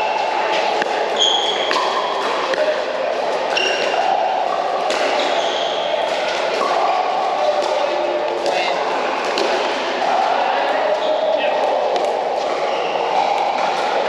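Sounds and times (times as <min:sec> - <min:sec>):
shoe squeaks: 0:01.2 - 0:02.1, 0:03.5 - 0:04.0, 0:05.1 - 0:06.0.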